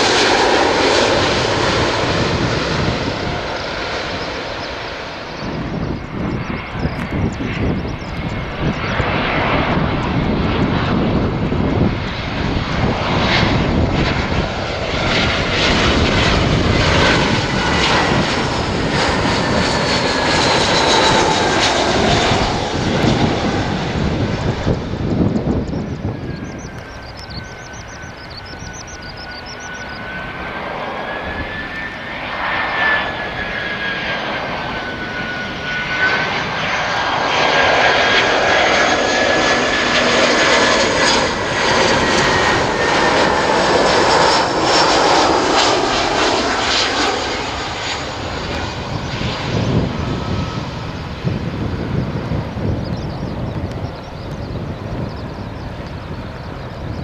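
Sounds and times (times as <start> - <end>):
jet airliner passing overhead: 0.0 - 57.0.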